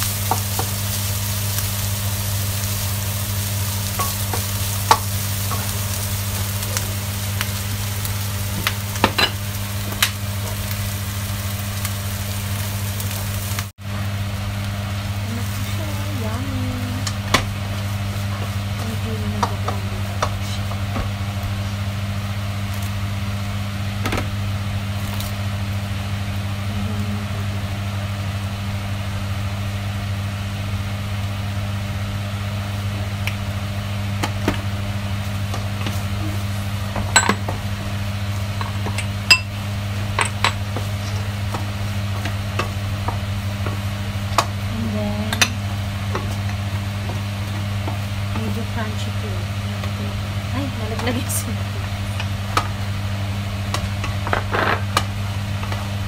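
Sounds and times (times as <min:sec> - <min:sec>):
chicken sizzling in frying pan: 0:00.0 - 0:26.6, 0:27.5 - 0:56.0
steady low hum: 0:00.0 - 0:56.0.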